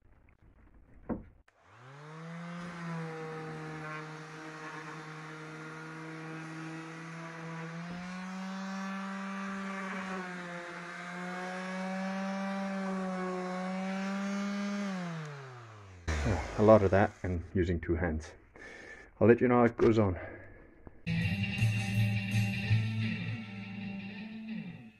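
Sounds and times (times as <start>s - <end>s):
sander humming and whining: 1.5s - 17.4s.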